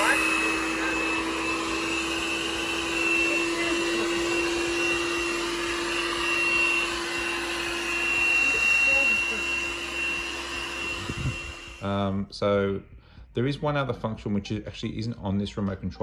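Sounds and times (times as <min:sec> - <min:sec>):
robot vacuum cleaner running: 0:00.0 - 0:12.2.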